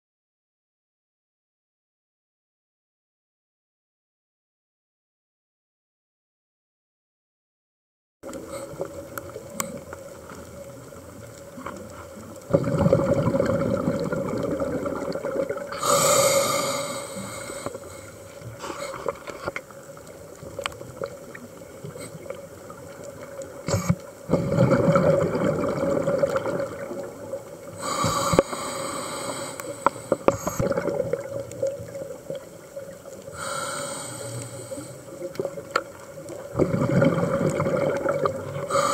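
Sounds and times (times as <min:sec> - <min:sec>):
faint steady hum: 0:08.3 - 0:38.9
diver's regulator breathing underwater: 0:12.5 - 0:19.5, 0:27.7 - 0:31.2, 0:33.3 - 0:35.3, 0:36.5 - 0:38.9.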